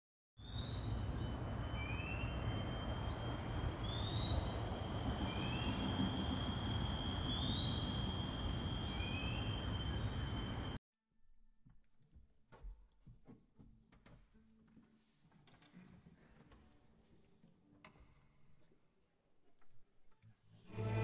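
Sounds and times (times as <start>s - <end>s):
short rising chirps: 0.5s - 10.8s
insects trilling: 1.7s - 10.8s.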